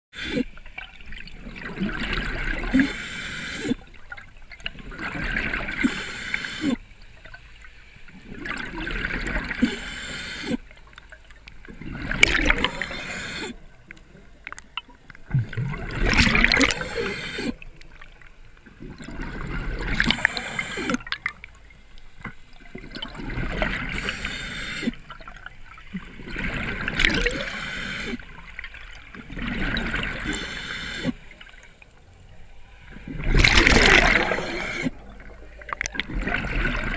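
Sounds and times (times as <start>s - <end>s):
exhaled bubbles gurgling: 0.2s - 7.4s, 8.1s - 31.9s, 32.8s - 36.9s
regulator hiss on inhale: 2.7s - 3.9s, 5.8s - 6.8s, 9.6s - 10.7s, 12.7s - 13.6s, 16.8s - 17.6s, 20.0s - 21.1s, 23.9s - 25.0s, 27.3s - 28.3s, 30.2s - 31.3s, 34.1s - 35.0s.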